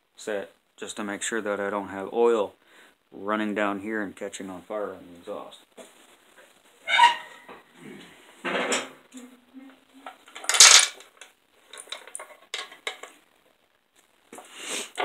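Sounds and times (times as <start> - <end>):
metal parts and tools clattering: 10.3 - 13.1.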